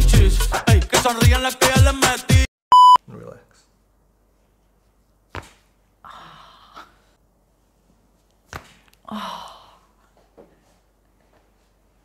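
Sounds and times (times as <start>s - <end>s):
woman sighing: 6.0s - 7.1s, 9.0s - 10.0s.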